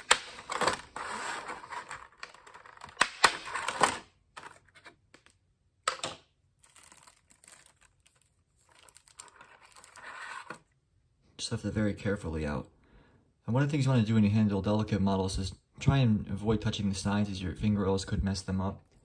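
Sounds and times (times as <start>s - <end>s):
plastic packaging crinkling: 6.5s - 10.3s.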